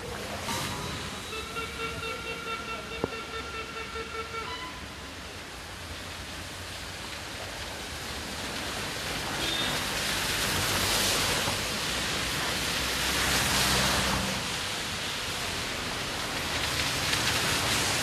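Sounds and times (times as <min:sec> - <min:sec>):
tyres hissing on wet road: 0:00.0 - 0:18.0.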